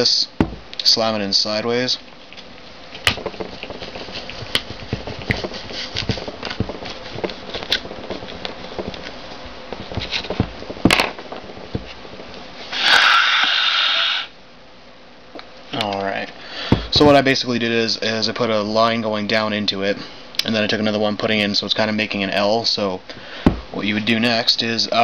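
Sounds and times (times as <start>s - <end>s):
sharp knocks: 0.4s - 0.7s
loud rushing hiss: 12.6s - 14.4s.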